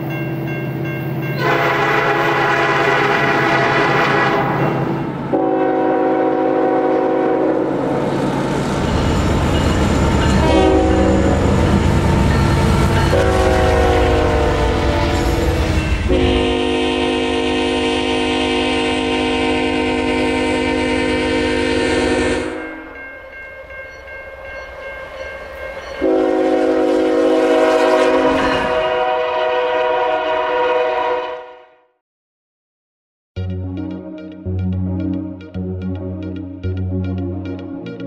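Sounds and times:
train rumbling: 0.0s - 31.0s
locomotive air horn blasts: 1.4s - 7.8s, 10.4s - 11.6s, 12.8s - 22.9s, 26.0s - 31.8s.

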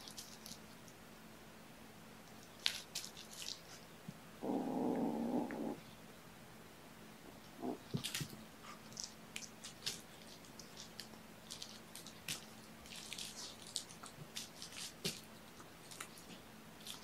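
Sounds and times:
low steady hum: 0.0s - 17.0s
kittens playing with toys: 7.6s - 15.3s.

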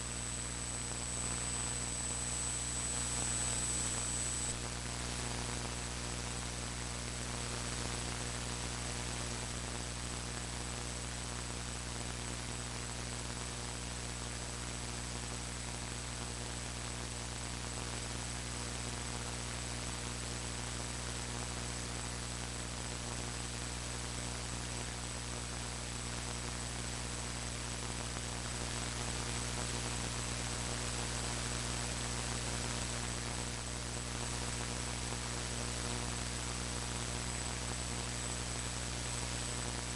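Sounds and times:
thin high whine: 0.0s - 5.6s
electrical hum: 0.0s - 10.2s, 27.6s - 39.9s.

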